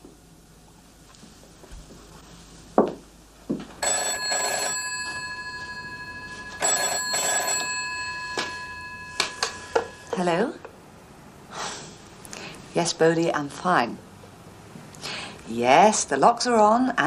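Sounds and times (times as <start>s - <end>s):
telephone bell ringing: 3.8s - 10.3s.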